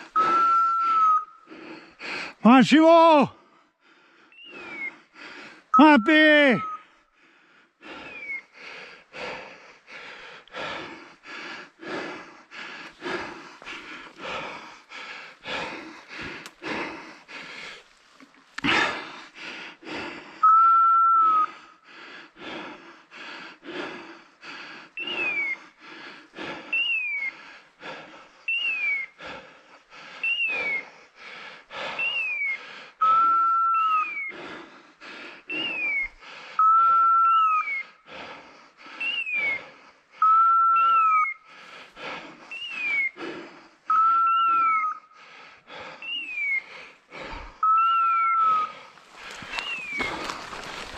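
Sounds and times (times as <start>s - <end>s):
held whistle notes: 0.2s - 1.5s, 20.4s - 21.6s, 28.5s - 29.1s, 30.2s - 30.9s, 32.0s - 34.3s, 35.5s - 37.8s, 39.0s - 39.6s, 40.2s - 41.4s, 42.5s - 43.2s, 43.9s - 45.0s, 47.6s - 48.7s, 49.6s - 50.0s
footsteps crunching through leaves: 48.9s - 50.9s.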